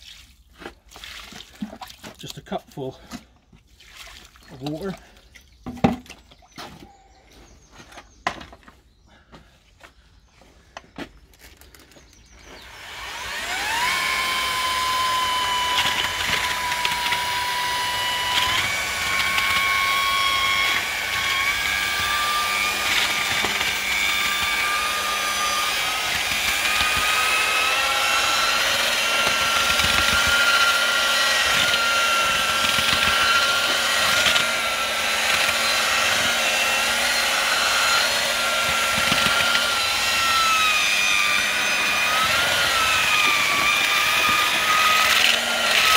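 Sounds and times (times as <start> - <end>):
paddle mixer motor whining: 11.5 - 45.9.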